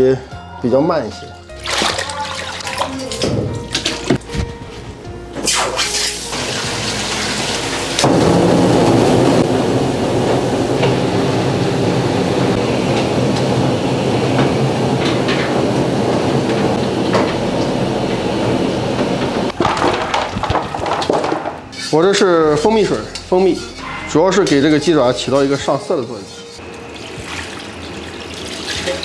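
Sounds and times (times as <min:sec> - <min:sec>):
washing machine motor hum: 0:02.0 - 0:21.0, 0:24.1 - 0:29.0
water rushing and tumbling: 0:05.5 - 0:20.9.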